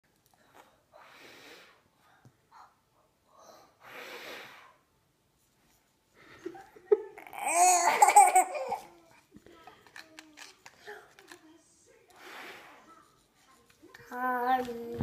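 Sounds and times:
child blowing breathy puff: 1.0s - 1.9s, 3.7s - 4.9s, 12.2s - 12.8s
child laughing loudly: 7.1s - 8.9s.

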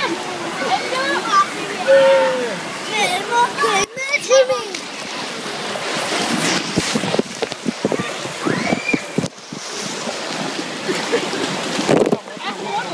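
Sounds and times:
voices of bathers: 0.0s - 6.4s, 12.2s - 12.9s
water rushing and churning: 0.0s - 12.9s
water splashing: 0.0s - 12.9s.

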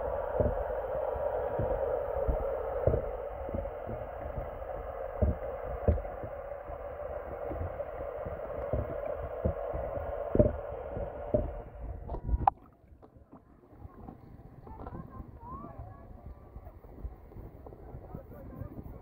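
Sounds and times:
low underwater thumps: 0.0s - 12.8s
dull underwater rush: 0.0s - 19.0s.

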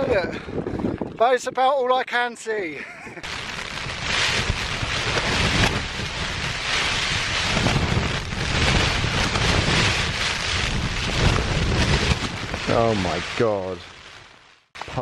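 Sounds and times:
wind buffeting microphone: 0.0s - 1.8s, 3.2s - 13.8s
heavy rain hissing: 3.2s - 14.0s.

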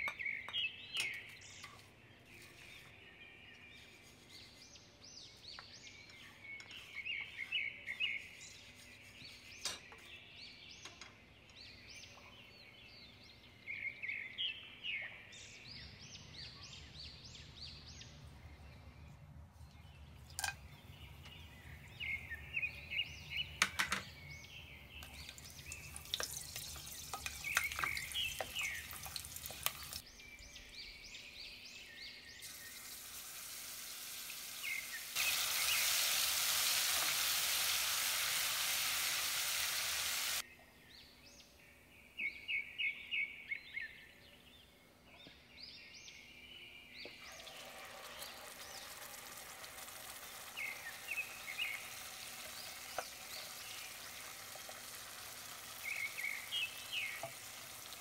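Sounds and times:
birds chirping: 0.0s - 58.0s
hot oil sizzling: 25.0s - 30.0s, 32.4s - 40.4s, 47.2s - 58.0s.

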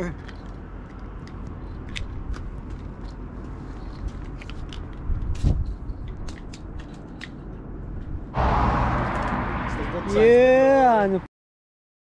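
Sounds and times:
sharp clicks and crackles: 0.1s - 7.4s
low rumble: 7.6s - 10.1s.

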